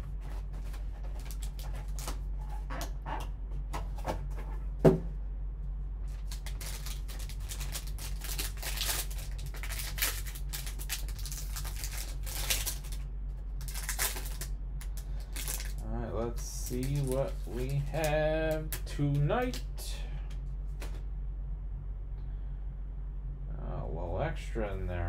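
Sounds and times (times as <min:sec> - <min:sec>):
foil wrapper crinkling: 0:00.5 - 0:02.3, 0:06.1 - 0:19.6.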